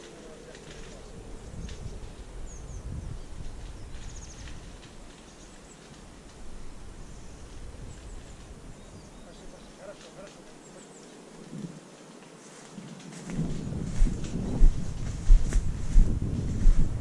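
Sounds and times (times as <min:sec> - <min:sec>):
footsteps in dry grass and leaves: 0:00.0 - 0:17.0
wind on microphone: 0:00.7 - 0:05.1, 0:06.4 - 0:09.2, 0:13.1 - 0:17.0
faint bird chirps: 0:07.0 - 0:11.3.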